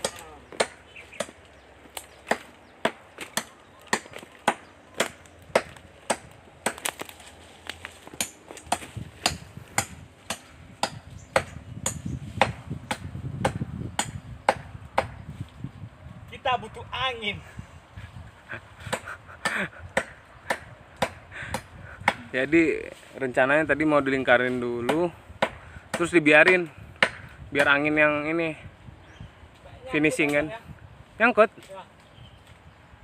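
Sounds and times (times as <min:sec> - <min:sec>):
axe chopping tree trunk: 0:00.0 - 0:07.2, 0:07.8 - 0:15.2, 0:18.9 - 0:22.3, 0:24.8 - 0:27.8.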